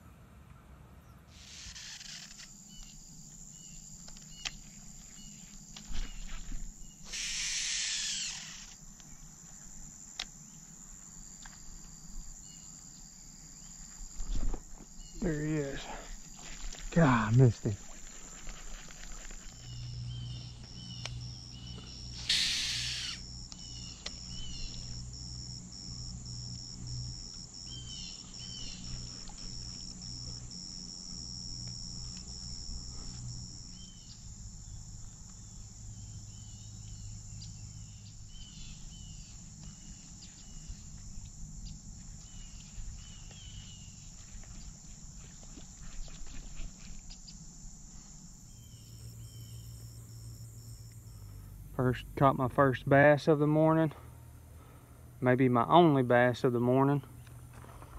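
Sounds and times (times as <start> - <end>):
insects buzzing: 1.3 - 57.9
short chirps: 22.2 - 23.2.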